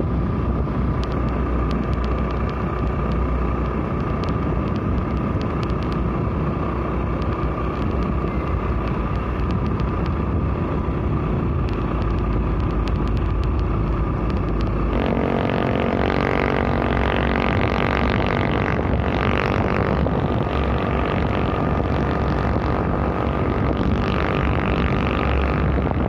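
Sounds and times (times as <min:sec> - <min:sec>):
wind and road rush: 0:00.0 - 0:26.0
droning engine note: 0:10.2 - 0:26.0.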